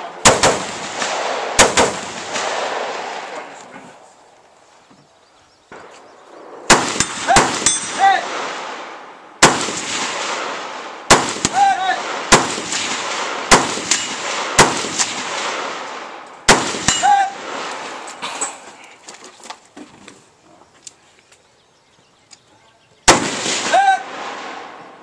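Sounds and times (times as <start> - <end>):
rifle shots: 0.0 - 3.6, 5.7 - 18.2, 23.1 - 25.0.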